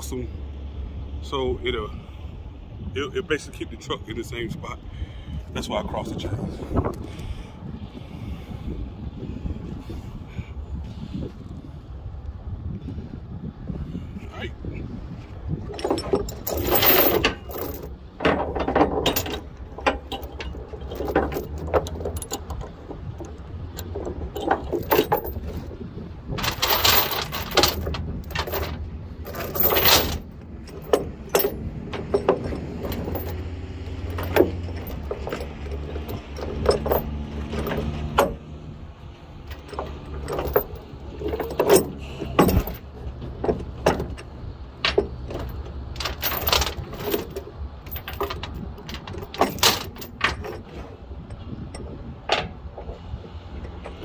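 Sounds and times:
steel chains clinking and rattling: 15.4s - 54.0s
ratchet chain binder clicking: 26.4s - 38.4s.

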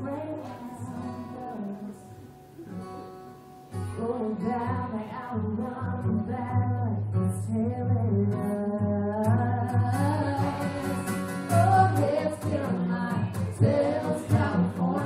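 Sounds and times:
acoustic guitar: 0.0s - 15.0s
person singing: 3.9s - 15.0s.

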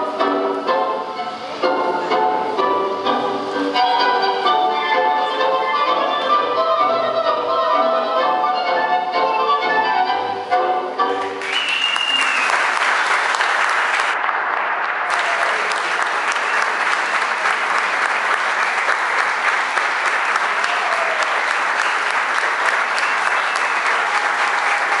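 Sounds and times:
audience applauding: 11.2s - 25.0s.

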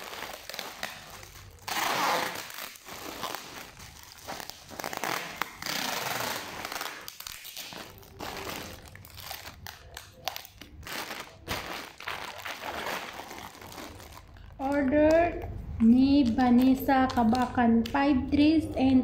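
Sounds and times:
packing tape screeching off roll: 0.0s - 14.4s.

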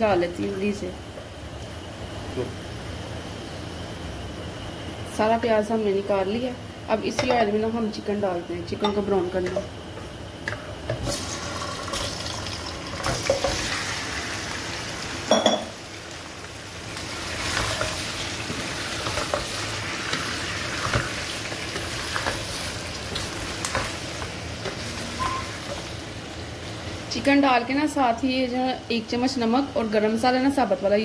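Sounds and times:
chicken sizzling in hot oil: 10.7s - 27.2s.

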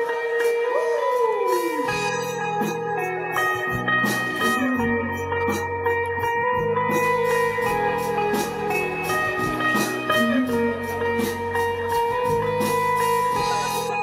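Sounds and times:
electric guitars holding notes: 0.0s - 14.0s
steady drum beat: 6.9s - 14.0s.

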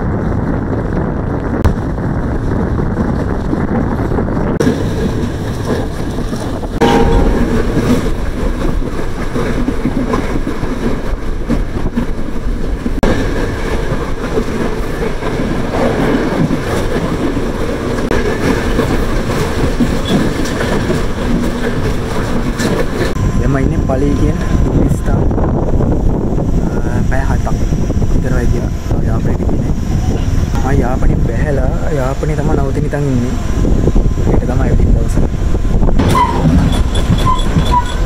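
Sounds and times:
train wheels on rails: 0.4s - 38.0s.

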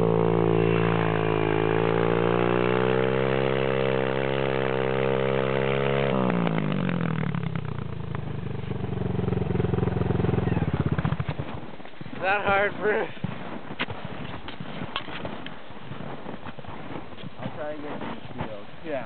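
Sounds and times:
dirt bike engine revving: 0.0s - 13.1s.

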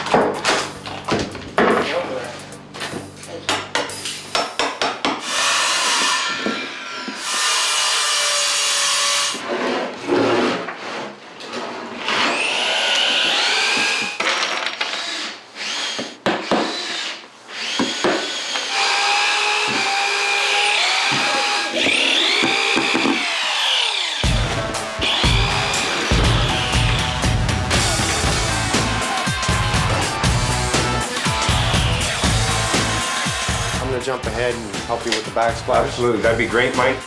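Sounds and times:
power drill driving screws: 12.0s - 24.2s, 25.0s - 27.2s.

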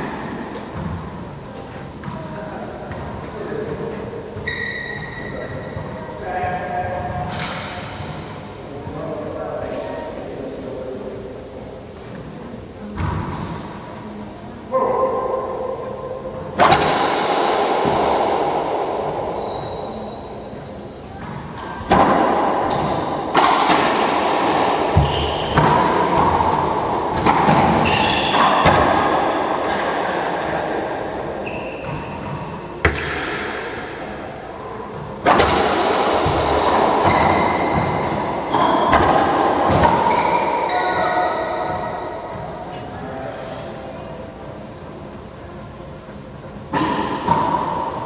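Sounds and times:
sneakers squeaking on hardwood: 2.9s - 6.1s, 24.9s - 26.3s, 27.2s - 29.2s, 31.4s - 33.1s, 36.2s - 42.2s
ball cracking off racquets and walls: 21.2s - 30.0s, 35.0s - 41.0s.

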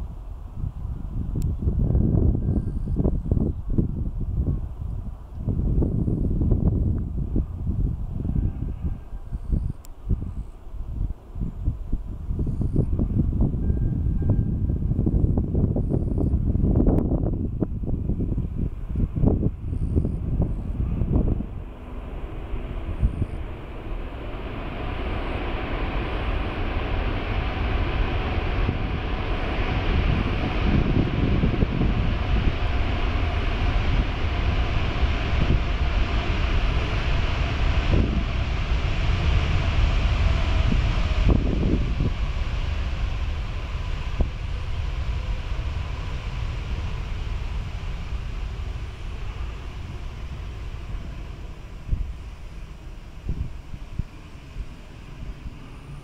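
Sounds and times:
jet engines rushing: 0.0s - 56.0s
wind buffeting on microphone: 0.0s - 56.0s.

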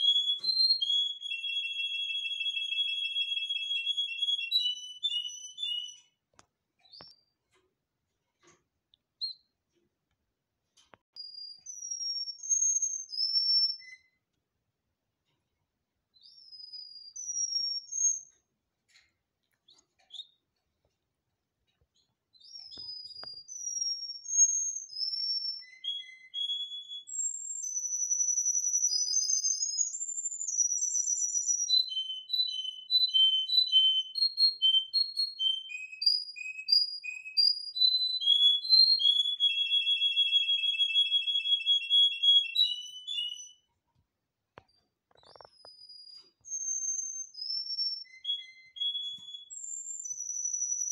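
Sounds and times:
canary singing: 0.0s - 6.2s, 9.2s - 9.5s, 11.2s - 14.2s, 16.1s - 18.4s, 19.6s - 20.5s, 22.0s - 43.7s, 44.7s - 50.9s.

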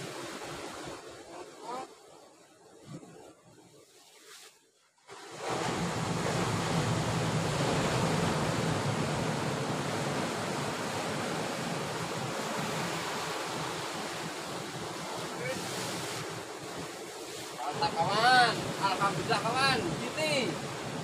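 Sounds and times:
surf breaking over rocks: 5.1s - 21.0s.

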